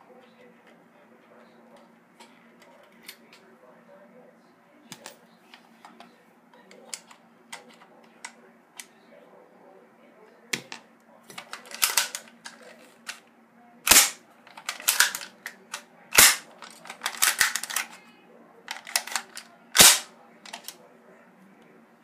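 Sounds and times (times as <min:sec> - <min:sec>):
plastic clicks and snaps: 0:18.7 - 0:20.8.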